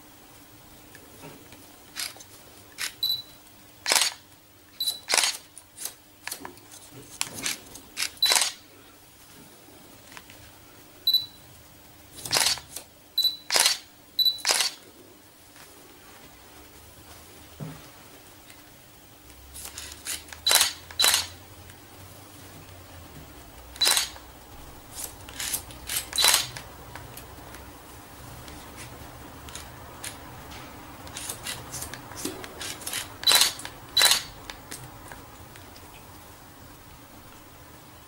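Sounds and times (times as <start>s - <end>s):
scissors snipping hair: 31.1s - 34.3s.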